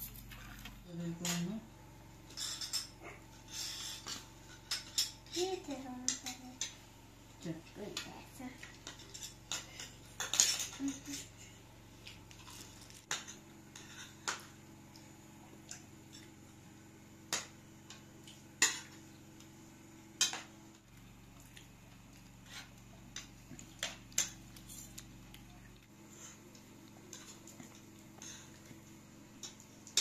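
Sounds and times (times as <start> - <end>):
faint low hum: 0.0 - 30.0
cutlery clinking on plates: 2.3 - 3.0.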